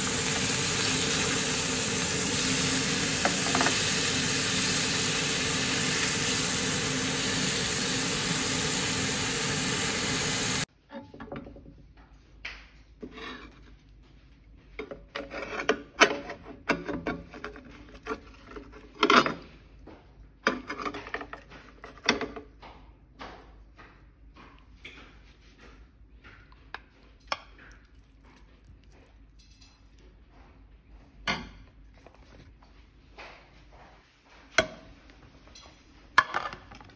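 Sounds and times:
rushing hiss from hot grill pan: 0.0 - 10.7.

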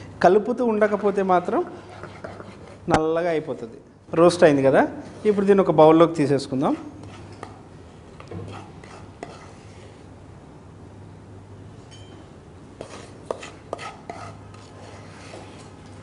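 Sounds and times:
spatula scraping frying pan: 8.5 - 9.9, 12.8 - 15.7.

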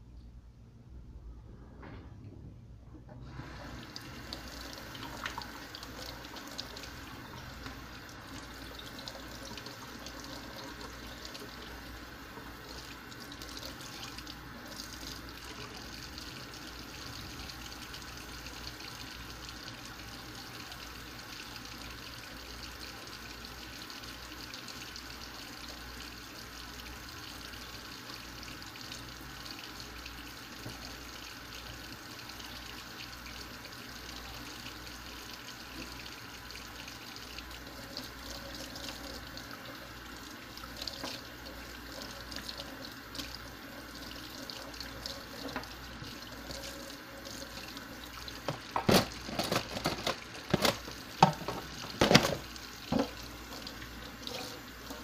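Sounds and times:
faucet running into sink: 3.1 - 55.0
dishes knocking in sink: 48.4 - 53.2.

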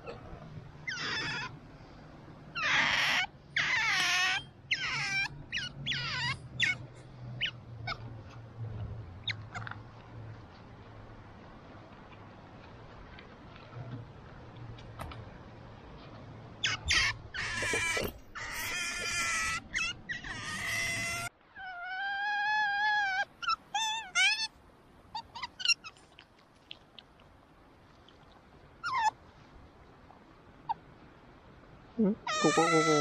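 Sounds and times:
otter squealing and whining: 0.8 - 1.6, 2.5 - 8.2, 16.6 - 24.5, 32.2 - 33.0.

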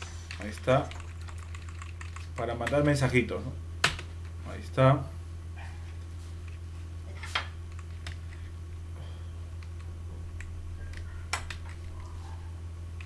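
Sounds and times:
low electrical hum: 0.0 - 13.0
computer keys clicking: 0.3 - 2.9, 9.6 - 12.1.

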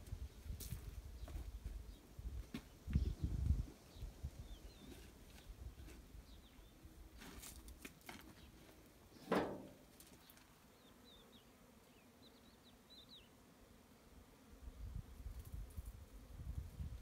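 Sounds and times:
small birds chirping: 0.3 - 6.9, 10.1 - 13.4
blocks knocking in metal wheelbarrow: 9.2 - 9.8.

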